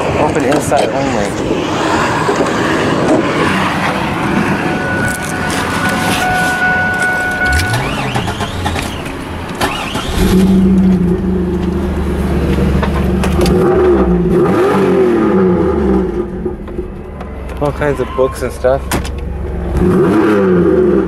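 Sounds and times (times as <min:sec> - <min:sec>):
car engine revving: 0:01.4 - 0:21.0
steady high tone: 0:01.6 - 0:09.5, 0:15.3 - 0:19.7.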